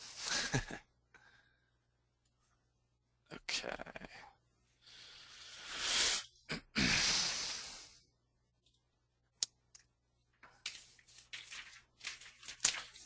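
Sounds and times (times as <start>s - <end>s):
person breathing close to microphone: 4.7s - 8.1s.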